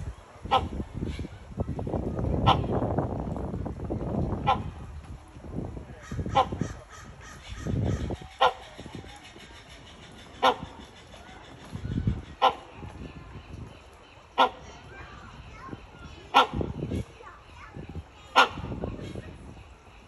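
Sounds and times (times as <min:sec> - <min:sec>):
hornbill barking calls: 0:06.0 - 0:13.1, 0:14.2 - 0:14.9, 0:15.7 - 0:17.0, 0:18.2 - 0:18.8.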